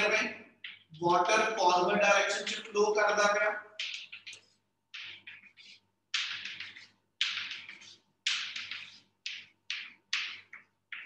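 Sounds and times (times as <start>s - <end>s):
chalk scraping on blackboard: 3.8s - 9.8s.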